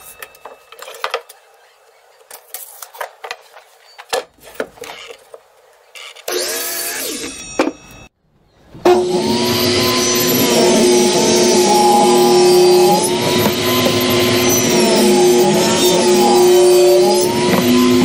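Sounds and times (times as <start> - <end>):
table saw ripping wood: 8.8 - 18.0.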